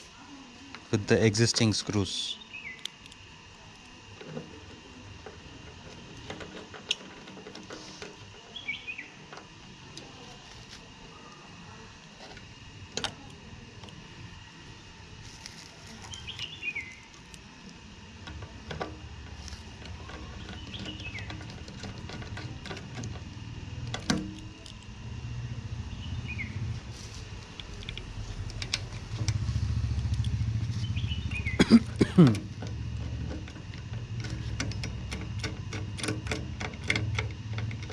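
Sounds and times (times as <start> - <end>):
bird chirp: 2.3 - 2.9, 8.5 - 9.2, 16.1 - 17.1, 25.8 - 26.7, 30.8 - 31.6
vehicle engine rumbling: 4.1 - 11.2, 11.9 - 37.9.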